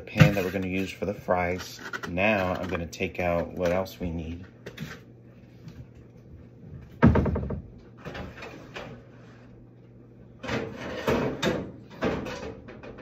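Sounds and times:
heavy knock on cabinet: 0:07.0 - 0:07.7.

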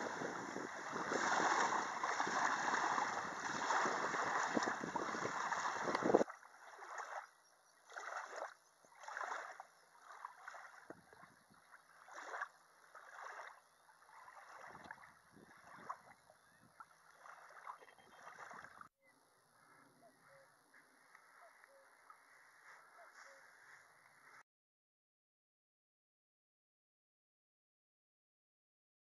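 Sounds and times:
rushing wind: 0:00.0 - 0:06.2
choppy water: 0:00.0 - 0:18.9
water splashing and lapping: 0:00.0 - 0:18.9.

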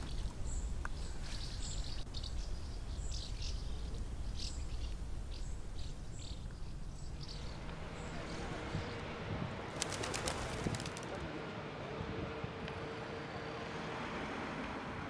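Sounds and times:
small birds chirping: 0:00.0 - 0:11.2
low outdoor rumble: 0:00.0 - 0:13.3.

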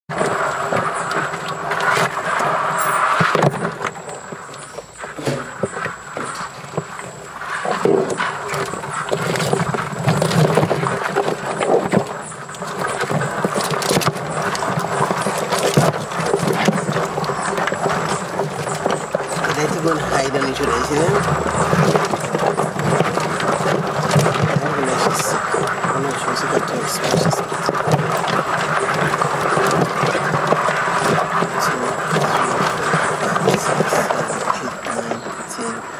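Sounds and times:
crabs clattering in a container: 0:00.1 - 0:35.9.

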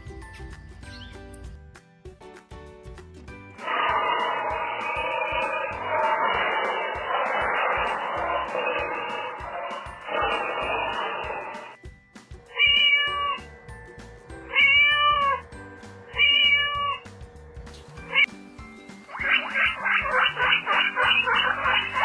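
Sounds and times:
background music with steady beat: 0:00.0 - 0:22.0
kitten meowing: 0:12.5 - 0:13.5, 0:14.5 - 0:15.4, 0:16.1 - 0:17.1.

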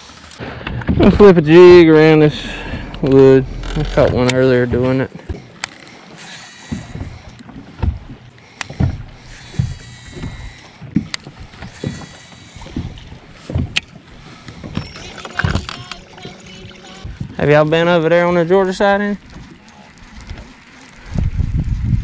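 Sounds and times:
waves slapping boat hull: 0:00.0 - 0:22.0.

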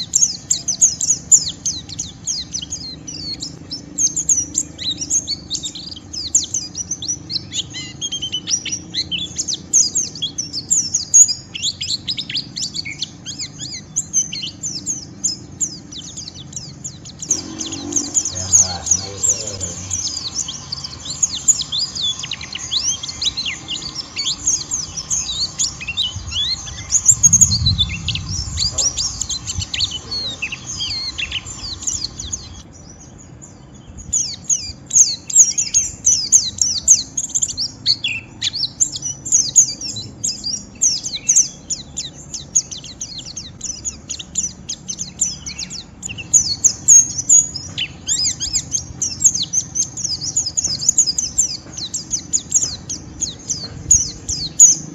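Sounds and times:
birds twittering: 0:00.0 - 0:54.9
low rumble: 0:17.3 - 0:32.7.

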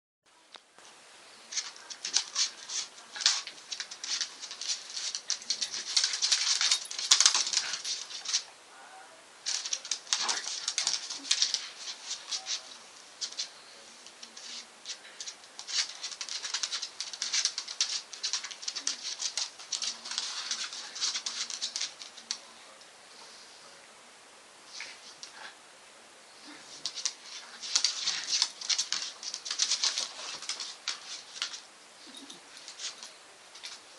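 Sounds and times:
dog claws clicking on hard floor: 0:01.5 - 0:08.5, 0:09.5 - 0:12.6, 0:14.2 - 0:22.4, 0:26.8 - 0:31.6
dogs scuffling in play: 0:01.5 - 0:08.5, 0:09.4 - 0:22.4, 0:26.5 - 0:33.9.

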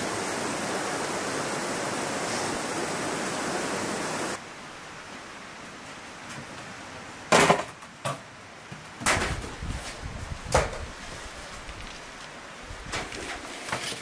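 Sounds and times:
celery stalks rustling: 0:09.5 - 0:14.0.

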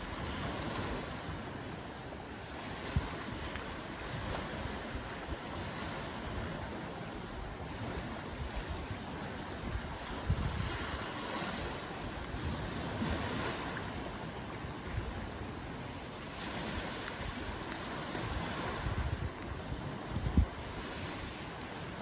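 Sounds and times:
small waves breaking on stony beach: 0:00.0 - 0:22.0
wind gusting on microphone: 0:00.0 - 0:22.0.

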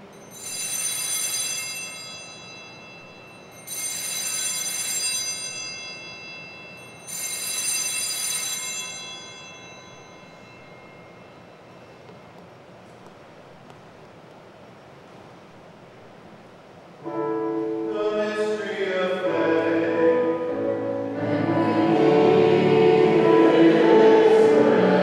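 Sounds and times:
altar bells ringing: 0:00.0 - 0:12.3.

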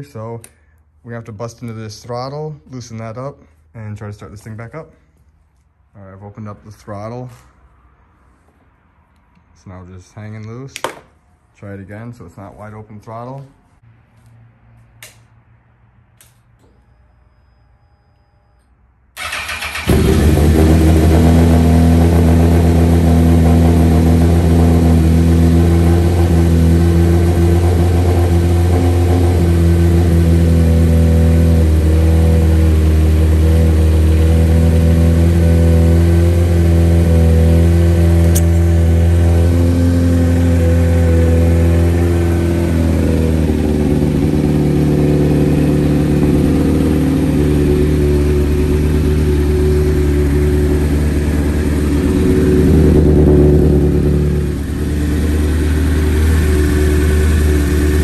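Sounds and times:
motorcycle engine running: 0:19.2 - 0:58.0.

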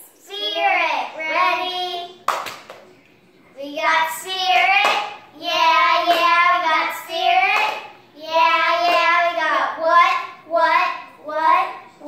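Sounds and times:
sharp claps: 0:02.2 - 0:03.0, 0:04.5 - 0:05.2, 0:06.0 - 0:06.4, 0:07.4 - 0:07.9, 0:08.8 - 0:09.2.

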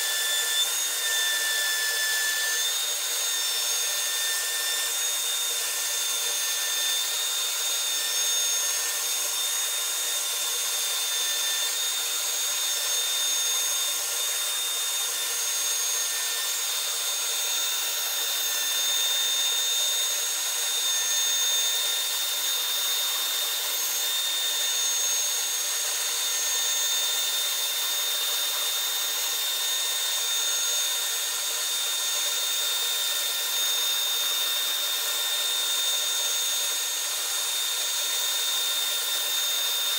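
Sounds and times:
hiss of bit cutting wood: 0:00.0 - 0:39.9
router spindle whining: 0:00.0 - 0:39.9.

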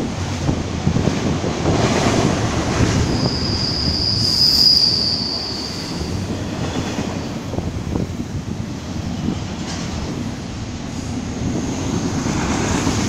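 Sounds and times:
train cars rumbling on rails: 0:00.0 - 0:13.0
high wheel squeal: 0:03.0 - 0:06.9.

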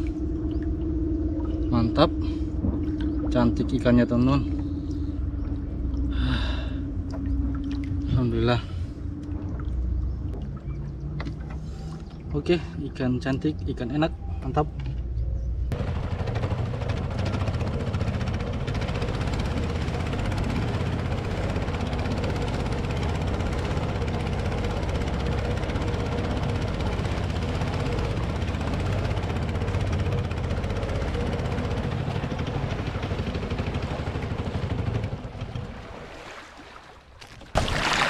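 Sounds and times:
small boat engine running: 0:00.0 - 0:38.0
water rushing past hull: 0:31.5 - 0:38.0.

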